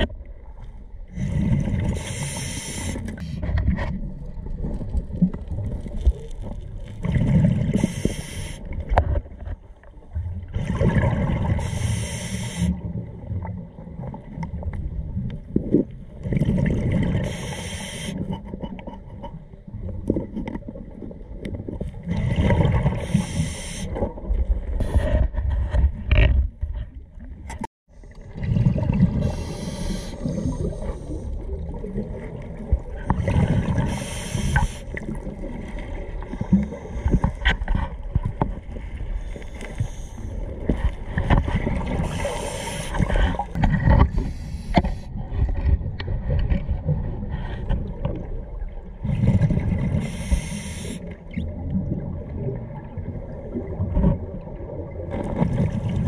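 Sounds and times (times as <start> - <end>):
low rumble of water: 0.0 - 56.0
exhaust bubbles underwater: 3.9 - 9.0, 10.0 - 11.9, 12.6 - 17.4, 27.9 - 37.3, 45.1 - 50.1, 51.0 - 56.0.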